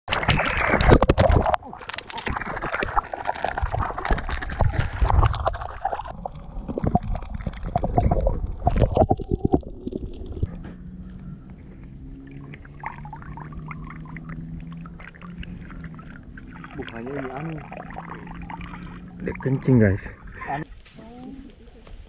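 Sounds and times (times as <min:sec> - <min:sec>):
underwater gurgling: 0:00.1 - 0:20.7
water splashing against camera: 0:00.1 - 0:20.8.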